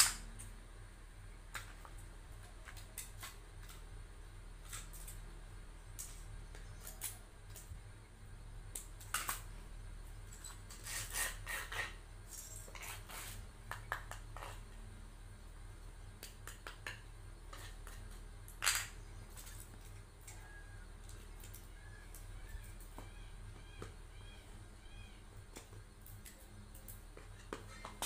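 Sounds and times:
low steady hum: 0:00.0 - 0:28.0
rustles and scrapes: 0:10.2 - 0:13.6.

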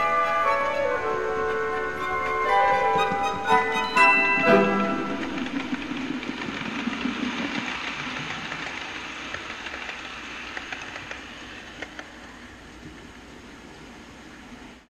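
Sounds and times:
wheels clicking over rail joints: 0:00.0 - 0:13.3
model train rumbling: 0:00.0 - 0:14.9.

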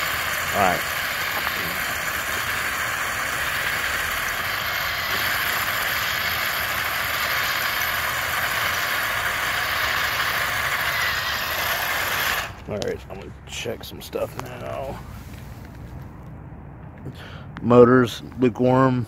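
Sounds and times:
toy tank motors and tracks running: 0:00.0 - 0:14.8.

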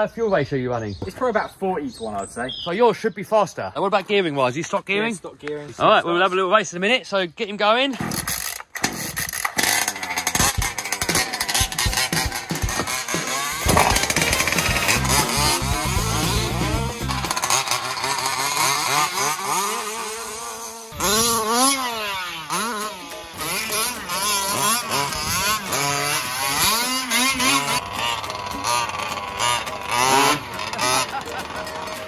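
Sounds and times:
two-stroke engine revving: 0:08.0 - 0:32.0.

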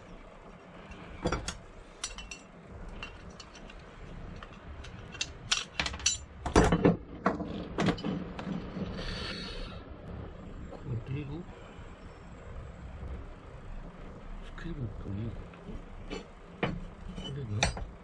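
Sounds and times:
small metal clicks and clinks: 0:00.9 - 0:06.3.

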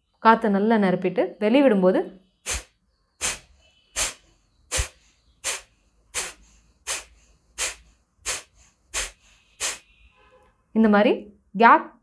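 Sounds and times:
forceful nasal exhalations: 0:02.4 - 0:10.0.

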